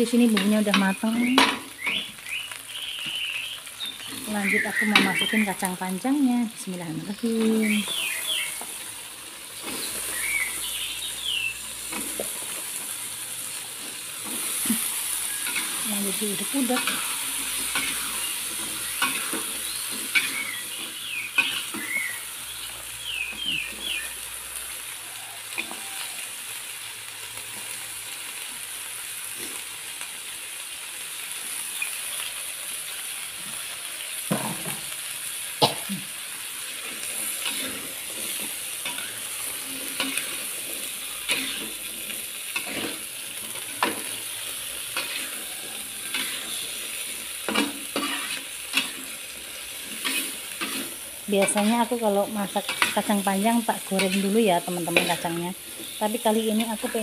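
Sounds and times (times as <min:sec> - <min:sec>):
beans sizzling in a wok: 0:00.0 - 0:57.0
metal spatula scraping a pan: 0:13.7 - 0:22.2, 0:36.8 - 0:57.0.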